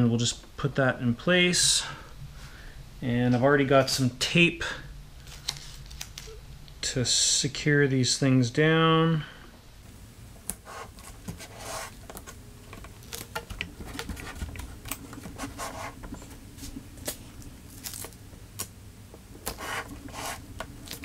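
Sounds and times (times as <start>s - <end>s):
faint steady hum: 0.0s - 21.0s
tape peeling rips: 17.0s - 18.7s.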